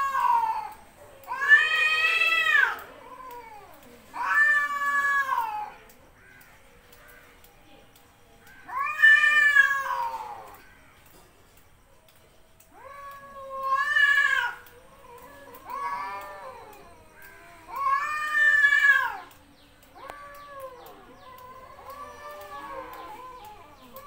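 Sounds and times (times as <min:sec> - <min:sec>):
cat moaning calls: 0:00.0 - 0:05.9, 0:08.6 - 0:10.6, 0:12.7 - 0:24.0
cats yowling: 0:00.0 - 0:07.2, 0:08.5 - 0:11.0, 0:12.6 - 0:24.0.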